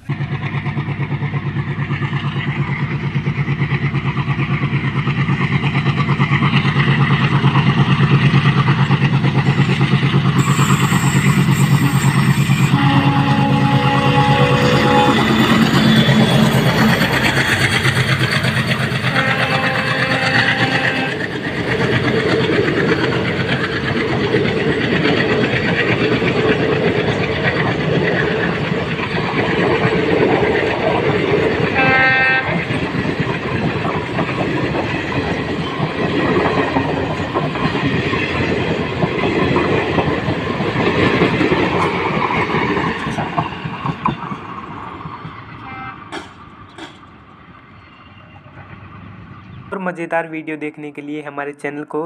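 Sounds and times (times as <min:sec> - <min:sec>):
train wheels on rails: 0:00.0 - 0:49.8
train horn blast: 0:11.8 - 0:15.6, 0:19.1 - 0:21.2, 0:31.8 - 0:32.6, 0:45.6 - 0:46.1.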